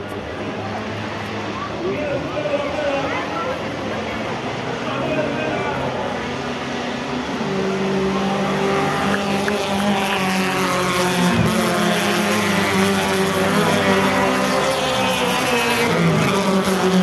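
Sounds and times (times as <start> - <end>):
race car engines droning: 0.0 - 17.0.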